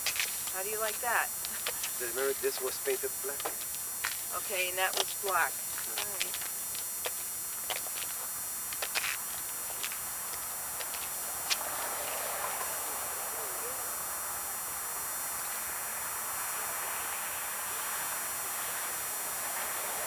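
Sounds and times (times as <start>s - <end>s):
road traffic hiss: 0.0s - 20.0s.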